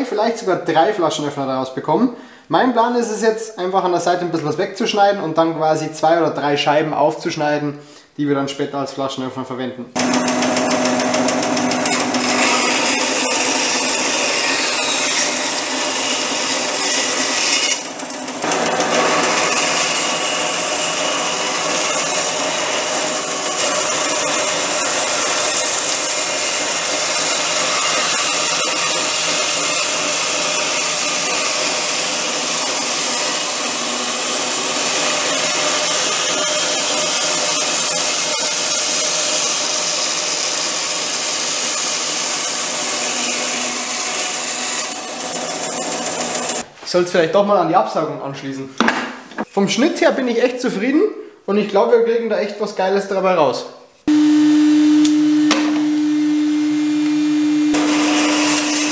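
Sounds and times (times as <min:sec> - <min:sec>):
bandsaw cutting through log: 0:10.0 - 0:46.7, 0:57.7 - 0:58.9.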